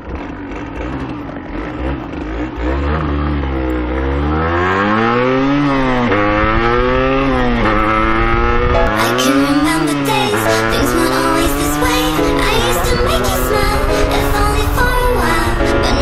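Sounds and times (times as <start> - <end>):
motorcycle engine accelerating: 0.0 - 16.0.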